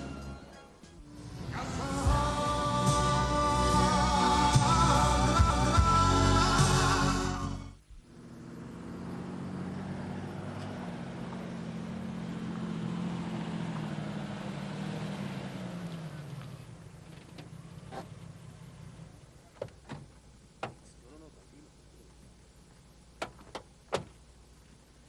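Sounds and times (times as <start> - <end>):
car driving by: 6.5 - 19.5.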